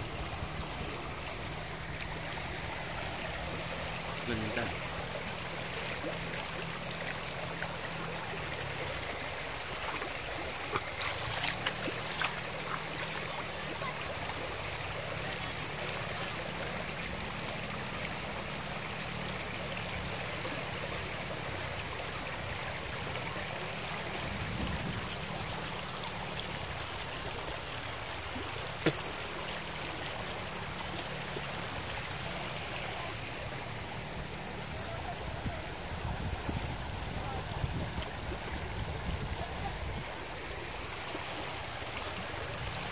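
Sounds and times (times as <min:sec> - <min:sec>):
river rushing over stones: 0:00.0 - 0:42.9.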